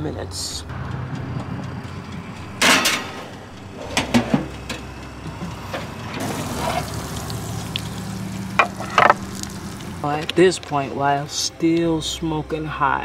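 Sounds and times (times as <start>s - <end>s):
metal pan clattering on wire rack: 2.6s - 3.3s.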